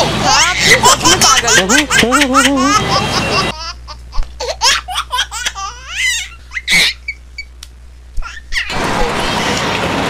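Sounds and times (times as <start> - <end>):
women laughing: 0.0 - 3.7.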